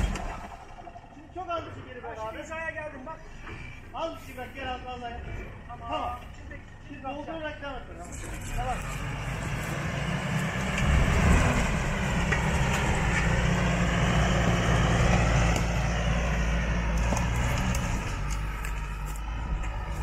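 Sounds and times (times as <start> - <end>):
pickup engine revving under load: 0.0 - 1.2, 8.1 - 20.0.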